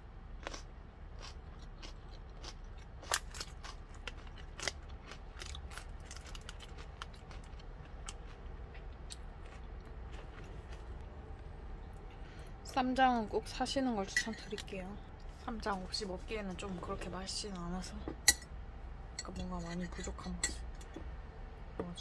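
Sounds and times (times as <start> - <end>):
low steady hum: 0.0 - 22.0
person chewing crunchy food: 0.3 - 11.1.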